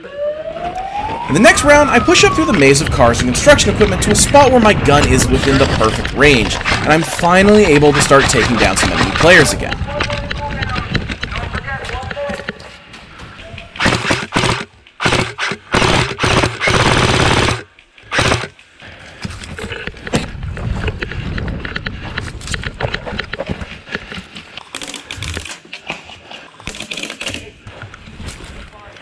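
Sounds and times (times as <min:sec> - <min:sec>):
airsoft rifle firing bursts: 0:13.8 - 0:18.5.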